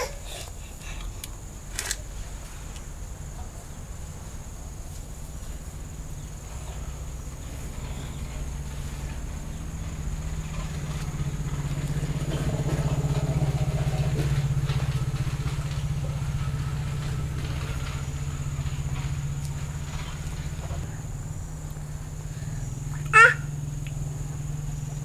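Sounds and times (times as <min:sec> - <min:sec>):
small engine pulsing hum: 0:00.0 - 0:25.0.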